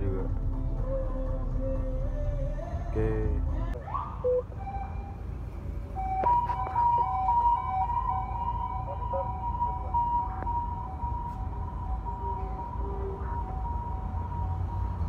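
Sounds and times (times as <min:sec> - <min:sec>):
vehicle engine rumble: 0:00.0 - 0:15.0
two-tone vehicle siren: 0:03.8 - 0:15.0.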